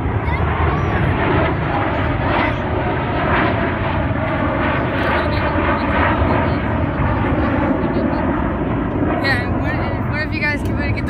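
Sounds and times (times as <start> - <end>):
jet engines droning overhead: 0.0 - 11.0.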